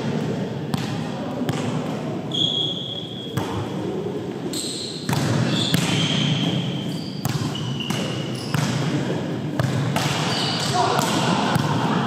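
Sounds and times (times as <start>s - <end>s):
sneakers squeaking on court: 4.4s - 9.0s, 9.6s - 10.8s
volleyball hits: 5.0s - 12.0s.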